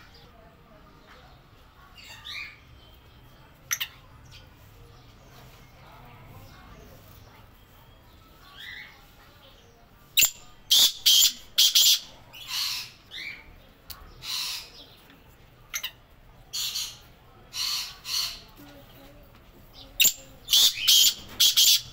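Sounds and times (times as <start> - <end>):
francolin calling harshly: 10.2 - 13.3, 20.0 - 21.9.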